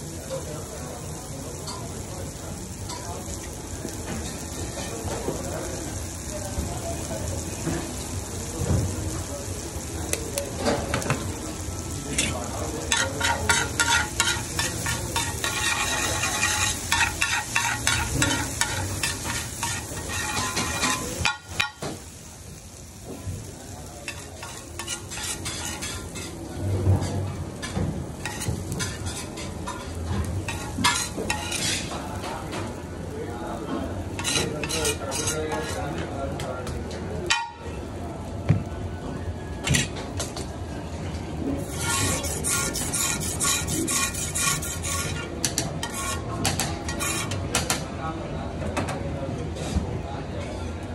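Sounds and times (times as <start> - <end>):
eggs sizzling on a griddle: 0.0 - 48.1
metal spatulas scraping: 12.9 - 21.4, 24.1 - 26.4, 30.5 - 32.0, 34.2 - 35.8, 41.6 - 47.7.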